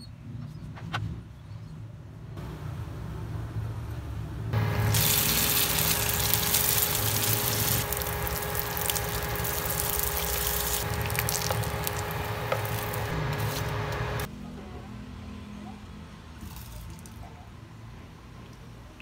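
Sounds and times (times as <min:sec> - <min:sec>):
food sizzling in hot oil: 0:04.6 - 0:14.3.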